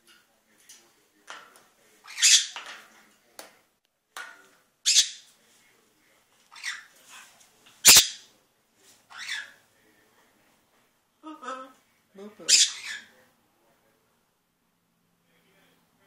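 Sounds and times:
macaw squawking: 4.9s - 5.2s, 7.9s - 8.2s.

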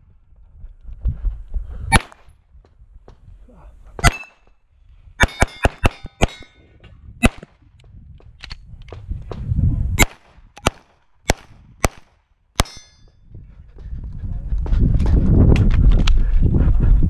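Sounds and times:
pistol shots: 1.9s - 2.2s, 4.0s - 4.4s, 5.2s - 6.6s, 7.2s - 7.5s, 10.0s - 13.0s
metallic ringing: 12.6s - 13.2s.

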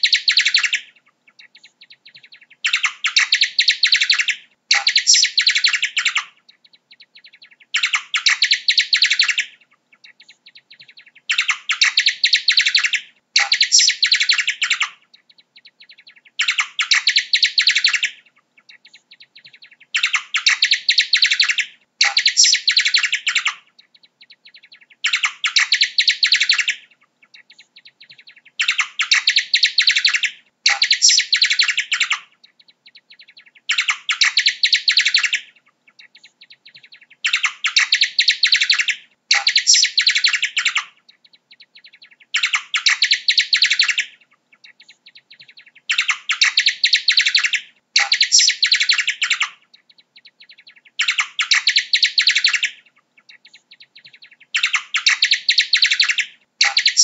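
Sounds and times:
bat chittering calls: 46.0s - 49.4s.

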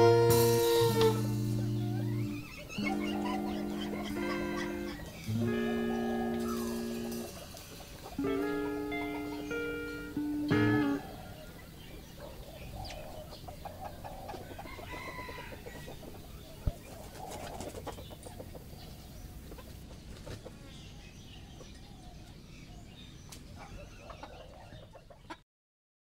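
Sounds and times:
chick making short calls: 0.0s - 11.6s
wings fluttering: 0.3s - 9.7s.

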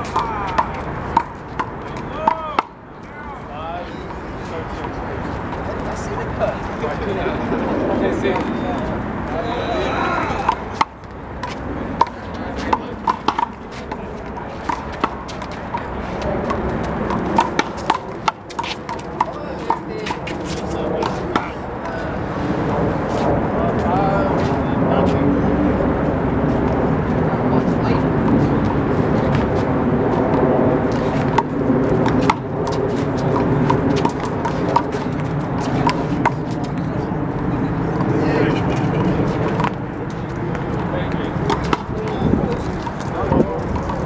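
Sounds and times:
ball bouncing on court: 0.0s - 2.8s, 10.4s - 20.4s, 30.9s - 36.6s, 40.5s - 44.0s
palms smacking a ball: 0.0s - 2.8s, 10.4s - 13.6s
distant traffic rumble: 0.0s - 44.0s.

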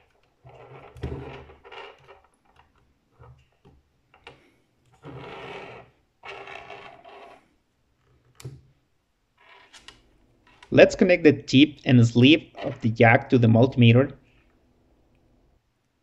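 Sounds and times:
camera scraping on wooden desk: 0.4s - 2.4s, 4.9s - 7.5s.

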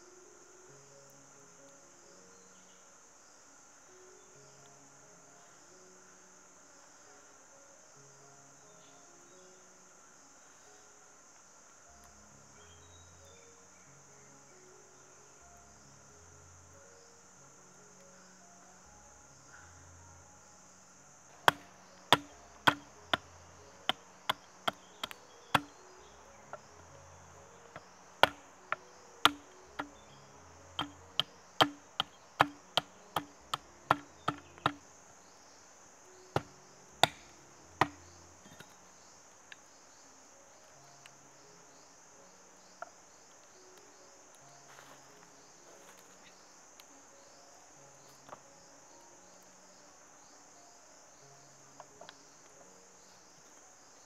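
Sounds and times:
high insect drone: 0.0s - 54.0s
hatchet chopping bamboo: 21.4s - 25.8s, 27.7s - 34.8s, 36.3s - 38.7s.

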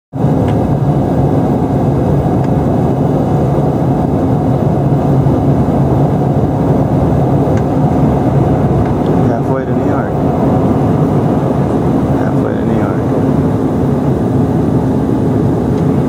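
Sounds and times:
airliner cabin drone: 0.1s - 16.0s.

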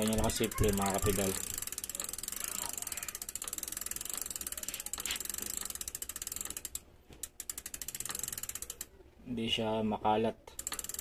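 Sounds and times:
bicycle hub clicking rapidly: 0.0s - 9.0s, 10.5s - 11.0s.

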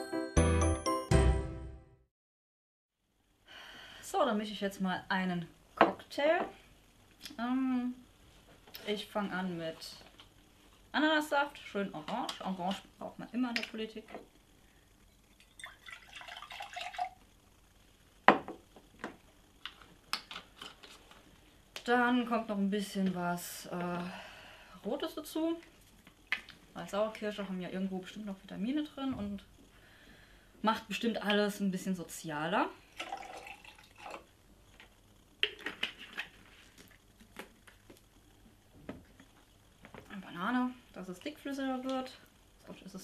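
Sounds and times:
juice pouring into metal cup: 15.1s - 17.2s, 32.9s - 34.3s.

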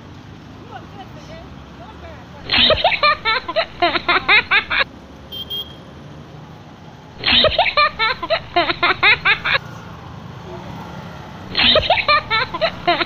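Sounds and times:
road traffic hum: 0.0s - 13.0s
high-pitched giggling laugh: 2.4s - 4.9s, 7.2s - 9.6s, 11.5s - 13.0s.

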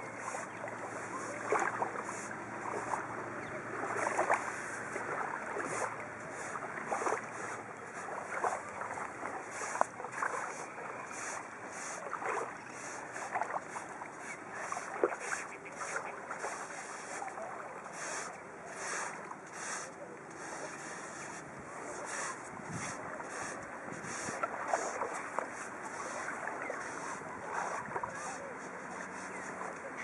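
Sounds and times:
stick scratching in sand: 9.3s - 30.0s.

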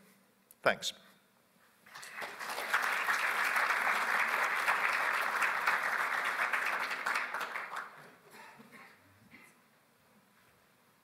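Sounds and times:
audience applauding: 1.9s - 8.6s.

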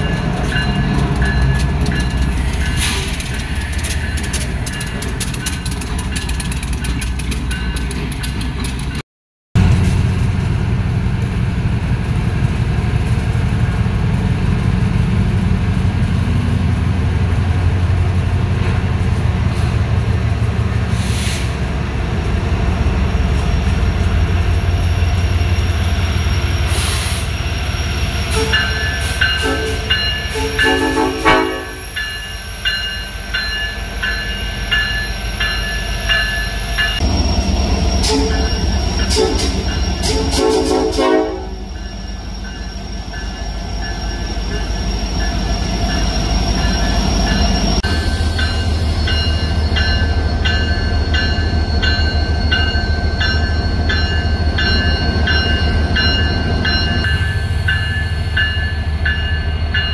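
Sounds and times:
locomotive bell ringing: 0.0s - 9.0s, 27.3s - 59.9s
locomotive engines rumbling: 0.0s - 9.0s, 9.6s - 59.9s.

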